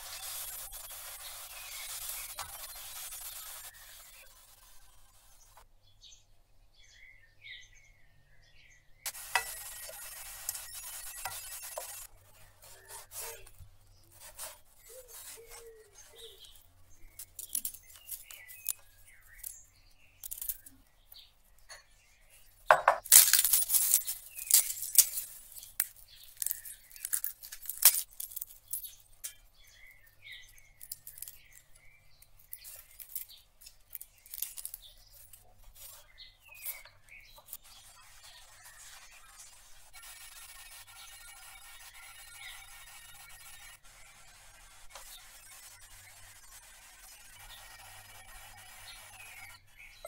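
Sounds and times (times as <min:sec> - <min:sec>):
papery crackling and rustling: 0:23.1 - 0:28.9, 0:32.4 - 0:41.0.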